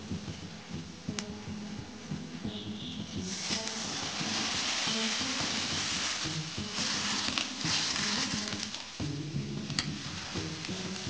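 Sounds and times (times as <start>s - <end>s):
metal spatula stirring: 3.2s - 9.0s
onions frying in oil: 3.2s - 11.0s
water sizzling in hot pan: 3.2s - 11.0s.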